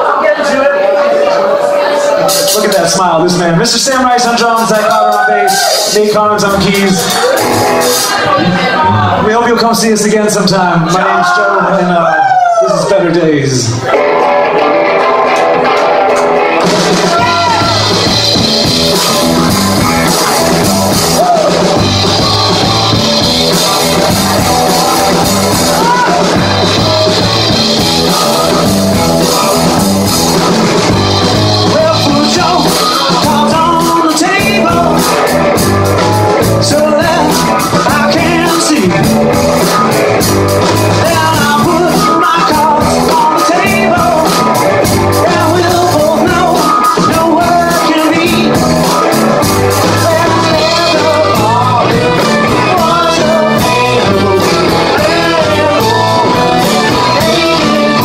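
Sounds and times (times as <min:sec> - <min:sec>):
live rock band playing: 0:00.0 - 0:58.0
man singing lead vocal: 0:17.0 - 0:18.0, 0:31.6 - 0:35.4, 0:36.3 - 0:39.3, 0:40.9 - 0:49.2, 0:49.8 - 0:58.0.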